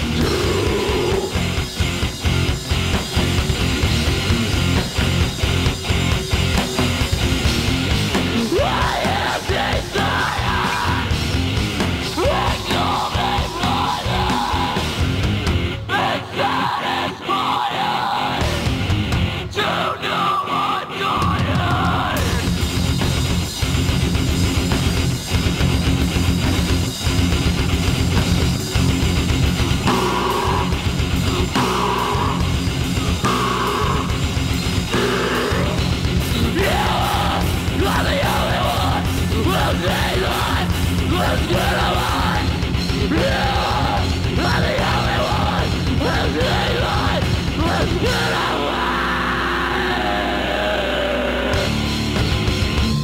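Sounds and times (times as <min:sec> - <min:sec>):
screamed vocal: 0:00.0 - 0:01.6, 0:08.3 - 0:11.4, 0:12.0 - 0:15.0, 0:15.9 - 0:18.7, 0:19.5 - 0:22.5, 0:29.6 - 0:52.0
fast drumming: 0:00.0 - 0:15.7, 0:21.4 - 0:48.5
heavy electric guitar riff: 0:00.0 - 0:53.0.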